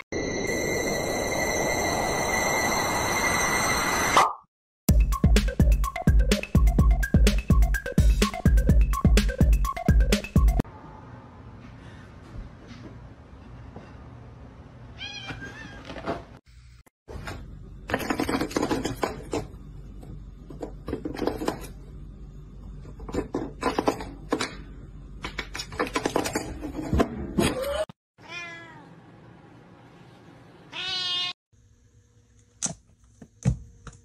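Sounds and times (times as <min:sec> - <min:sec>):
cats meowing: 0:28.2 - 0:28.9, 0:30.7 - 0:31.4.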